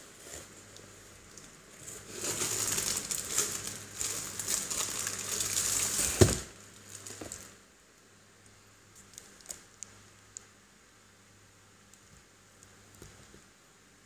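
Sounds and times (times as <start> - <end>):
plastic bag crinkling: 0.1 - 7.6.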